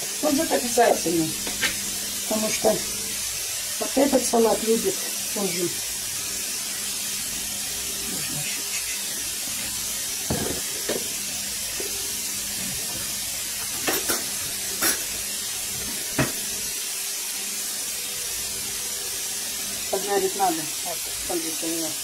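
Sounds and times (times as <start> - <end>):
food frying in oil: 0.0 - 22.0.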